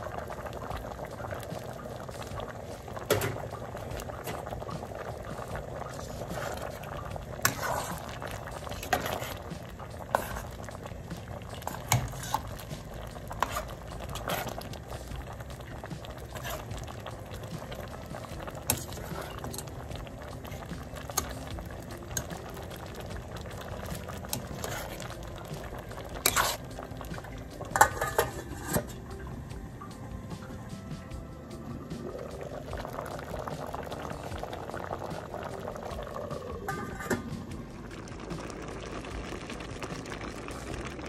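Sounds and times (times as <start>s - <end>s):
stew bubbling at a simmer: 0.0s - 41.0s
pot lid clanking: 3.0s - 4.6s, 27.6s - 29.1s, 36.6s - 37.5s
metal ladle clinking against pot: 27.7s - 29.0s.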